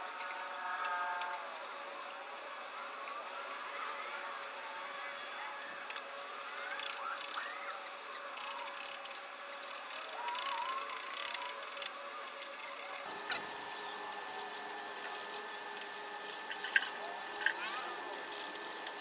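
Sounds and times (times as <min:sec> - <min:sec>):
faint chirping glides: 0:13.0 - 0:18.8
brush scratching metal: 0:13.0 - 0:19.0.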